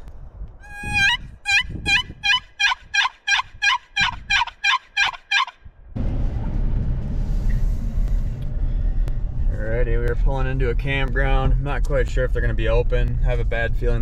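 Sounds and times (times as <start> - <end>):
low road noise: 0.0 - 14.0
turkey calls: 0.6 - 5.6.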